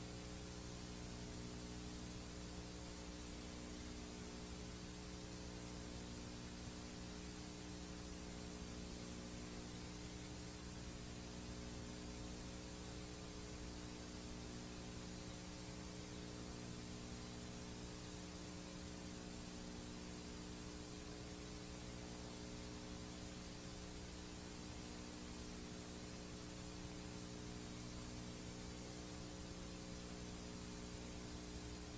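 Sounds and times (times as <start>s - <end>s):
tape hiss: 0.0s - 31.9s.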